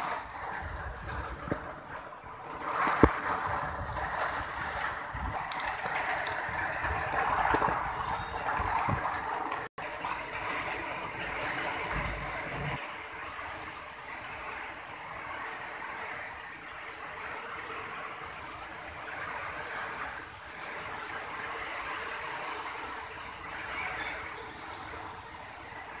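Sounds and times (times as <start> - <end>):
steady rain hiss: 8.6 - 26.0.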